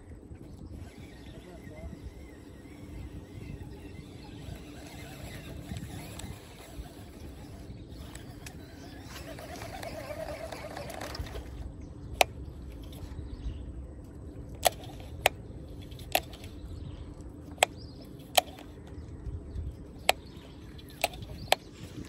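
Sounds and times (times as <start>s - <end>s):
rod and reel clicking: 0.4s - 13.2s, 14.5s - 19.2s, 19.8s - 22.0s
fishing reel whirring: 0.6s - 13.2s, 14.5s - 16.8s, 17.5s - 18.8s, 19.9s - 22.0s.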